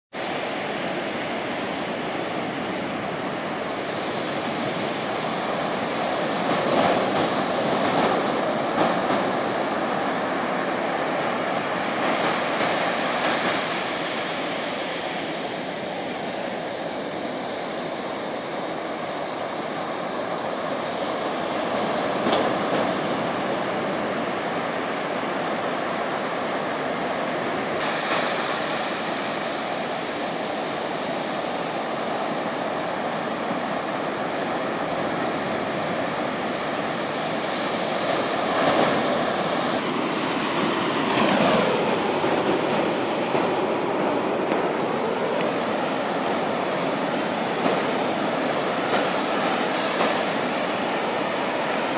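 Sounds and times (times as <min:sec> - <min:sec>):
ocean surf breaking on beach: 0:00.1 - 0:51.9.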